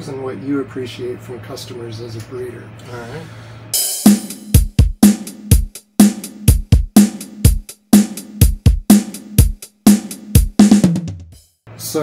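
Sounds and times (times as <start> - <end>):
drum beat over low note: 3.8 - 11.4.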